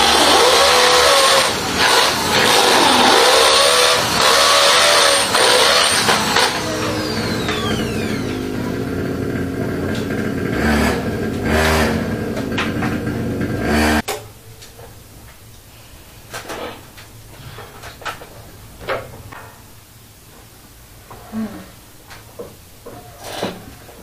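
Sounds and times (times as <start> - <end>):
electric drill boring into wall: 0.0 - 12.4.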